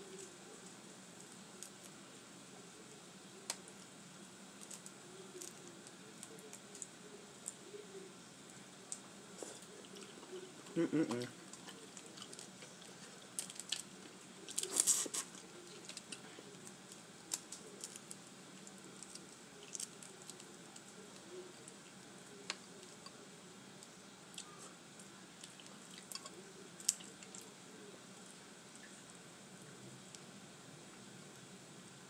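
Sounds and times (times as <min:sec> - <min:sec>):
crawfish shells cracking: 0:11.1 - 0:21.8.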